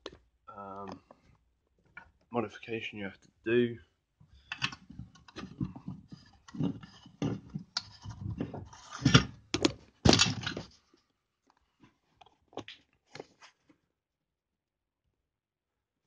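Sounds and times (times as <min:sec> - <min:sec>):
handling clicks knocks and scrapes: 0:04.4 - 0:13.8.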